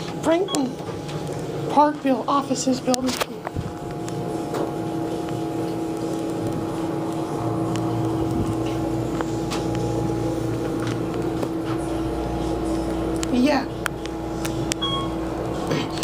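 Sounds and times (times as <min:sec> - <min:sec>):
elevator machine hum: 0:00.0 - 0:16.0
deep rumble: 0:03.4 - 0:16.0.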